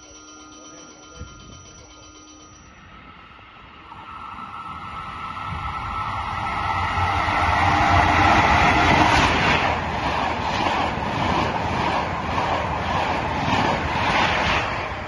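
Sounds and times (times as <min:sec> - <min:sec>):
passenger train passing: 0:02.4 - 0:15.0.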